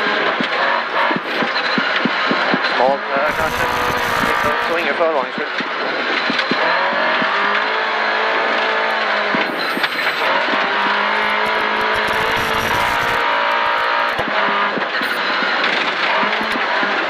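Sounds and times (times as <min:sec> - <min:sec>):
car engine revving hard: 0:00.0 - 0:05.1, 0:05.7 - 0:17.0
road surface rumble: 0:00.0 - 0:17.0.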